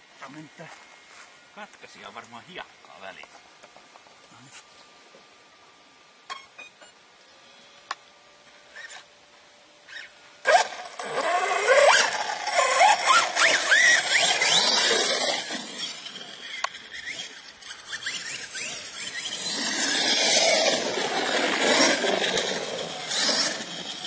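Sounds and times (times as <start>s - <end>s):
rc buggy engine revving: 9.9s - 24.0s.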